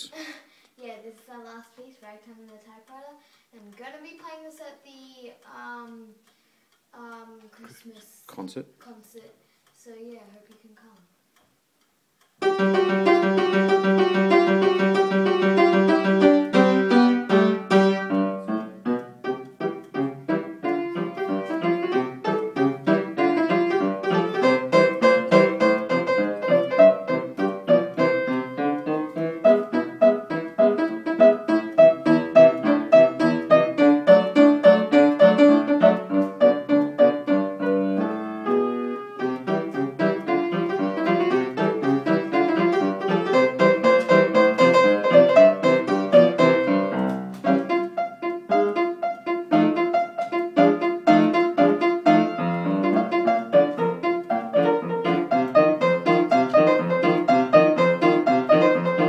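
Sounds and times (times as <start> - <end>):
ragtime piano playing: 12.4 - 59.0.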